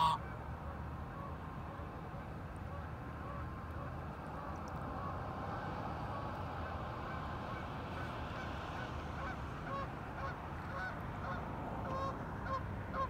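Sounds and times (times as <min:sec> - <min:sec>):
geese honking: 0:00.0 - 0:00.4, 0:09.2 - 0:13.0.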